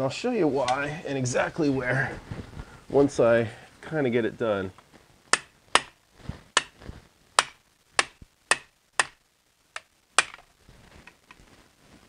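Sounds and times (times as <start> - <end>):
hammer striking pry bar: 5.3 - 6.0, 6.6 - 6.8, 7.4 - 9.2.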